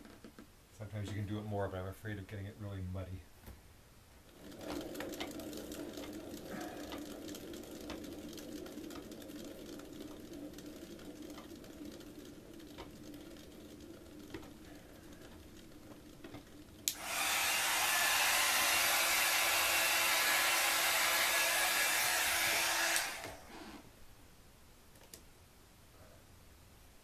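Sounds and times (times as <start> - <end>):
faint fan hum: 0.0 - 27.0
heat gun blowing air: 16.8 - 23.9.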